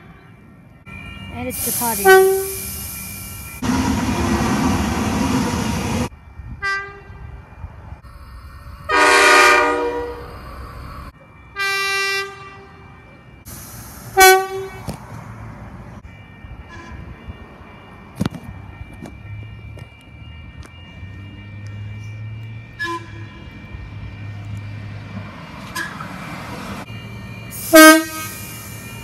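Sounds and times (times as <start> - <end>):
electric train running past: 0.4 - 29.0
train horn: 2.0 - 2.6, 8.9 - 10.3, 11.6 - 12.8, 14.2 - 14.8, 22.8 - 23.3, 27.6 - 28.6.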